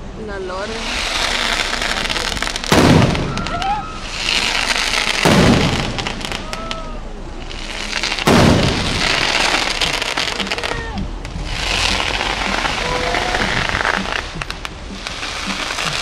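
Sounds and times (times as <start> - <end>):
hissing crackle of fireworks: 0.6 - 16.0
sharp firework cracks: 0.8 - 16.0
firework shell boom: 2.7 - 3.6, 5.1 - 6.6, 8.2 - 10.6.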